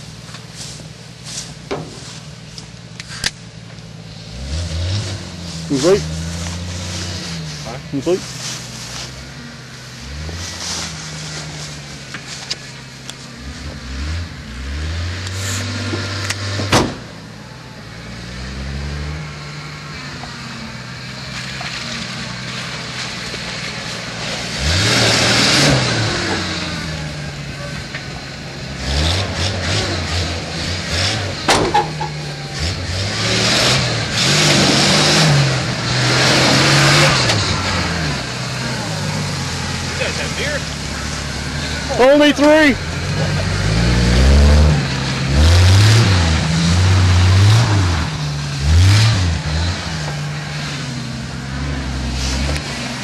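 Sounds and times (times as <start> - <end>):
spinning tires spraying mud: 0.0 - 14.2, 18.0 - 53.0
truck engine revving: 0.0 - 53.0
sharp knocks: 31.5 - 32.2.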